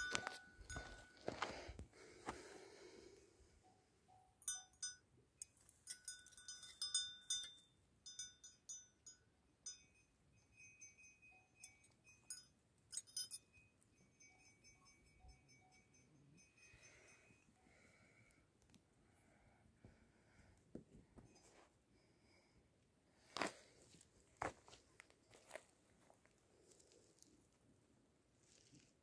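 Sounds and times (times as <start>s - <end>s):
metal chain clinking: 0.0s - 1.2s, 4.4s - 8.9s, 10.6s - 15.8s.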